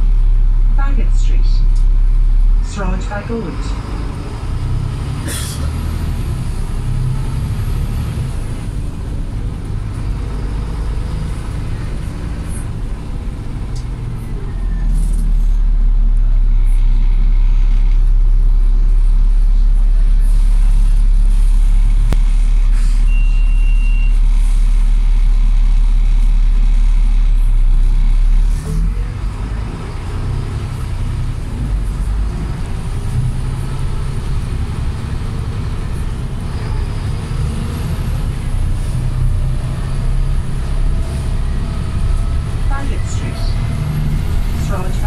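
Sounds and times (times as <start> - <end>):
bus diesel engine drone: 0.0 - 45.0
high beep: 23.1 - 24.2.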